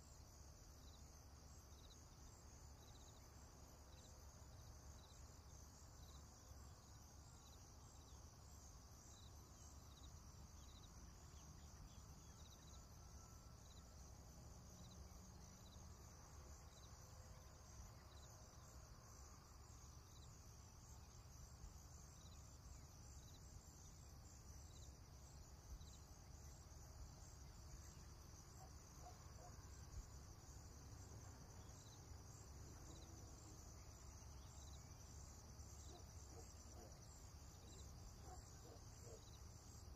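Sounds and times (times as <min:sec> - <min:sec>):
crickets trilling: 0:00.1 - 0:39.9.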